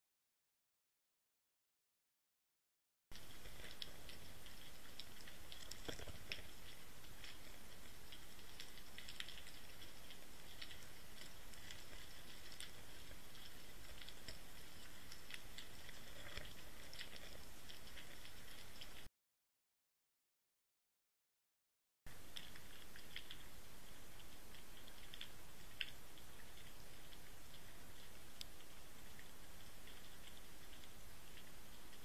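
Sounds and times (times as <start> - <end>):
small clicks and crackles: 3.1 - 19.1, 22.1 - 32.0.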